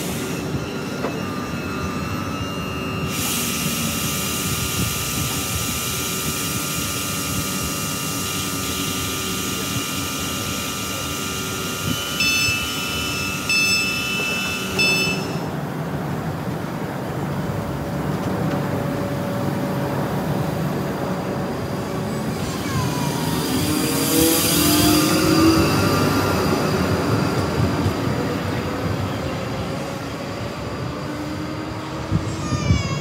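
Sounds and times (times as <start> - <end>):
train electrical whine: 0.0 - 32.4
short high beeps: 12.1 - 15.5.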